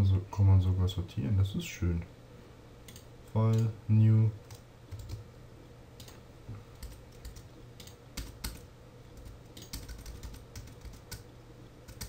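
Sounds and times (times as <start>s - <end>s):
faint steady hum: 0.0s - 12.0s
computer keyboard typing: 2.9s - 3.7s, 4.4s - 5.2s, 6.8s - 11.2s.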